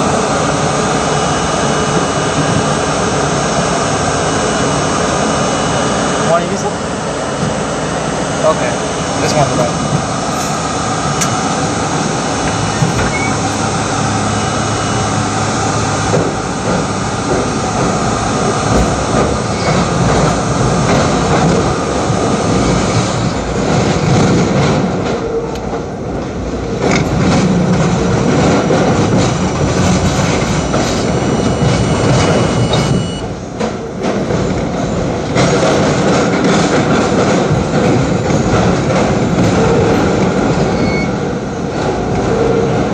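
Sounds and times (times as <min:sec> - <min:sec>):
subway train wheel and rail noise: 0:00.0 - 0:42.9
clattering over rail joints: 0:23.6 - 0:41.1.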